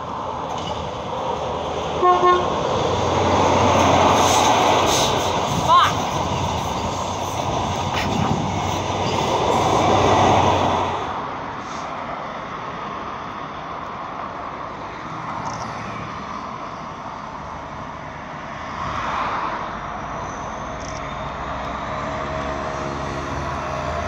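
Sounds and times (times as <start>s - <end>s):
diesel locomotive engine rumble: 0.0s - 15.6s.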